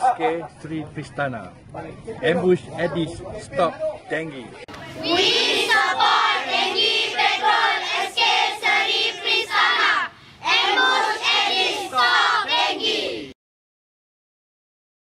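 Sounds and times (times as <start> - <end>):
group chanting in unison: 4.8 - 13.4.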